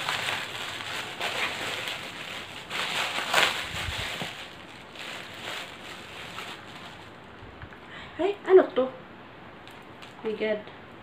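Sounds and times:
plastic mailer bag crinkling: 0:00.0 - 0:07.3.

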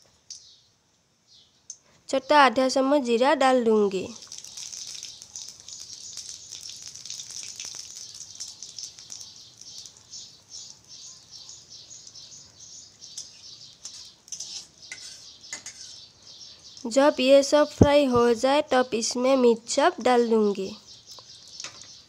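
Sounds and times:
seeds spluttering and popping: 0:04.1 - 0:14.4, 0:21.0 - 0:22.0
spices sizzling in hot oil: 0:04.1 - 0:17.0.

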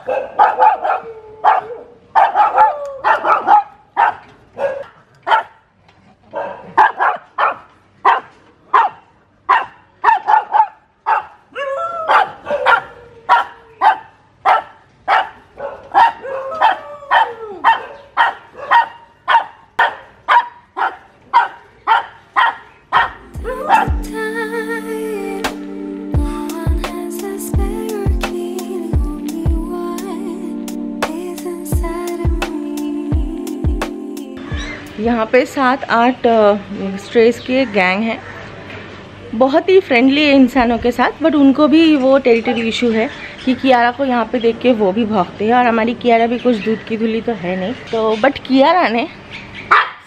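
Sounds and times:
dog barking sharply: 0:00.0 - 0:05.6, 0:06.3 - 0:11.4, 0:12.1 - 0:23.2, 0:49.7 - 0:50.0.

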